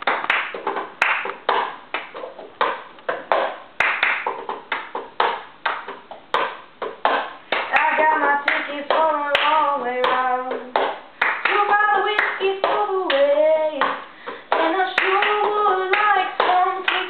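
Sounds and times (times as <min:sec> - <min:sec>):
plastic cup knocked and slapped: 0:00.0 - 0:07.7
hand claps: 0:00.0 - 0:17.0
person singing: 0:07.7 - 0:10.8, 0:11.5 - 0:17.0.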